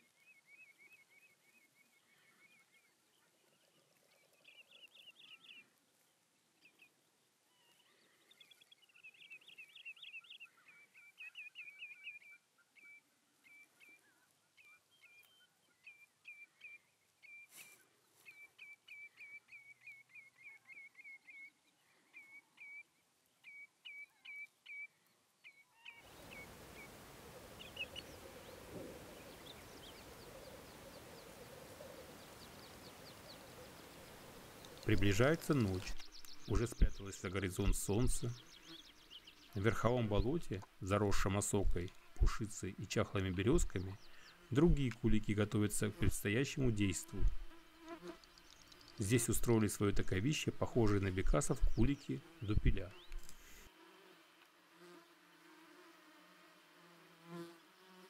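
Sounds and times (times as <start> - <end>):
faint hiss with low hum: 25.9 - 57.9.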